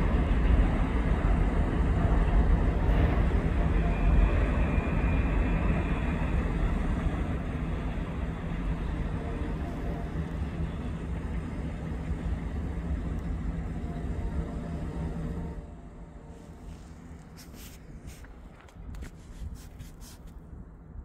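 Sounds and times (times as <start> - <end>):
freight train cars rumbling on rails: 0.0 - 21.0.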